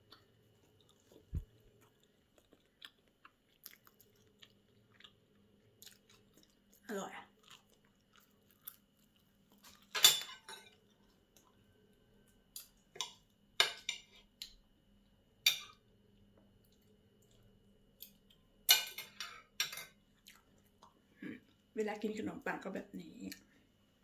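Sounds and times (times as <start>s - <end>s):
cutlery clinking on ceramic plate: 9.9s - 10.8s, 18.7s - 20.0s.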